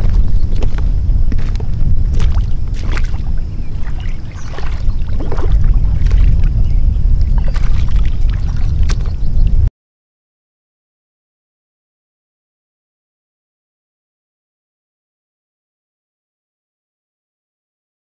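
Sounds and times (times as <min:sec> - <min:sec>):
water splashing and sloshing: 0:00.0 - 0:09.7
wind rumble on microphone: 0:00.0 - 0:09.7.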